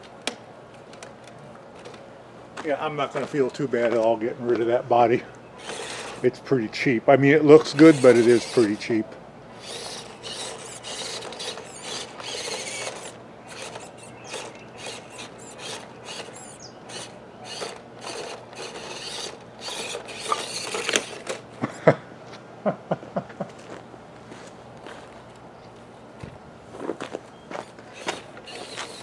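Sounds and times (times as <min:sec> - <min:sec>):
toy truck tumbling knocks: 0:05.6 - 0:06.2, 0:09.6 - 0:21.4, 0:27.6 - 0:29.0
toy truck electric motor whining: 0:05.6 - 0:06.3, 0:07.6 - 0:21.7, 0:27.5 - 0:29.0.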